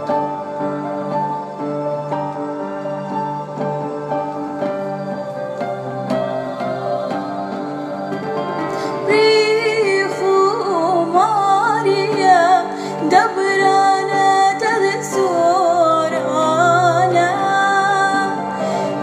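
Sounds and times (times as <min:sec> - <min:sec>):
instrumental accompaniment: 0:00.0 - 0:19.0
woman singing a hymn: 0:06.0 - 0:19.0.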